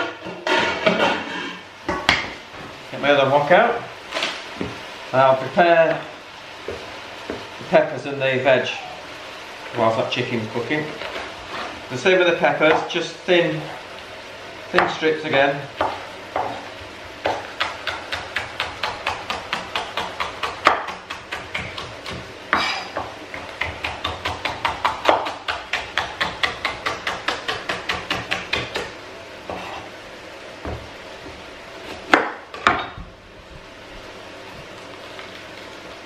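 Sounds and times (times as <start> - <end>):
knife chopping on wooden board: 17.2 - 28.9.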